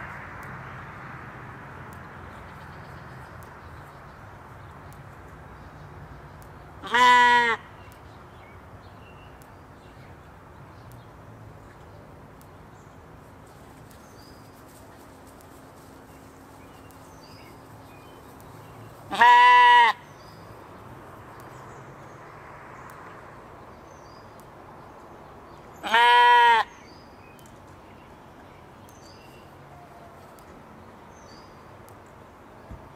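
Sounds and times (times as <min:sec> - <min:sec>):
sheep bleating: 0:06.8 - 0:07.6, 0:19.1 - 0:20.0, 0:25.8 - 0:26.7.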